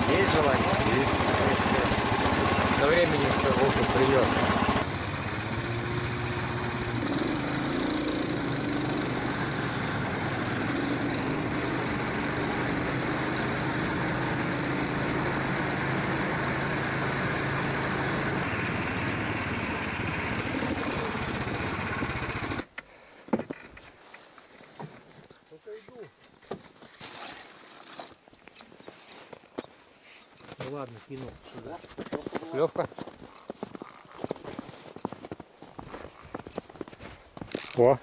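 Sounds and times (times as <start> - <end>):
snowmobile engine running: 0.0 - 22.7.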